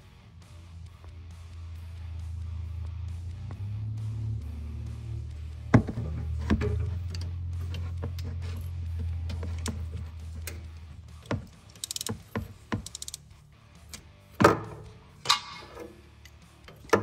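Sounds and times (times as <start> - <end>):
steady low hum: 0.0 - 15.3
socket ratchet clicking: 9.2 - 14.1.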